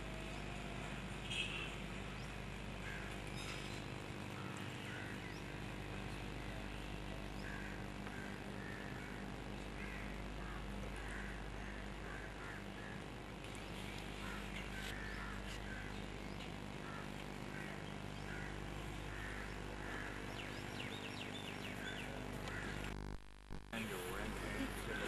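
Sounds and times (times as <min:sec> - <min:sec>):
steady low hum: 0:00.0 - 0:25.0
birds calling: 0:01.2 - 0:23.0, 0:23.8 - 0:25.0.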